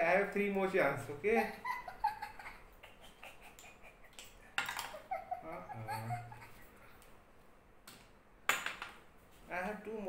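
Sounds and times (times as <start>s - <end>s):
child giggling: 1.4s - 6.7s.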